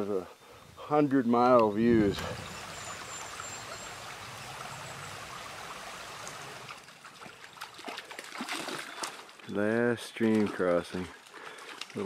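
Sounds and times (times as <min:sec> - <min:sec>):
mountain stream rushing: 0:01.9 - 0:09.3.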